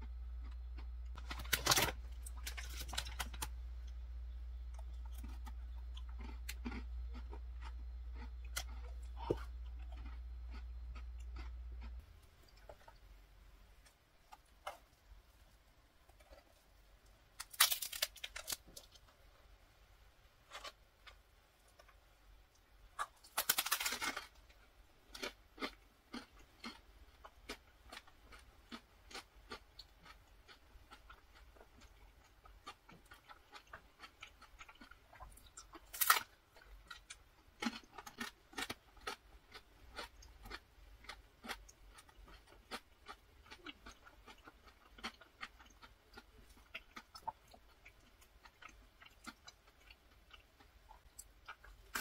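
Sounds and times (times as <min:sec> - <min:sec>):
crunchy chewing: 0:00.0 - 0:13.1, 0:16.1 - 0:19.2, 0:20.5 - 0:52.0
low steady hum: 0:00.0 - 0:52.0.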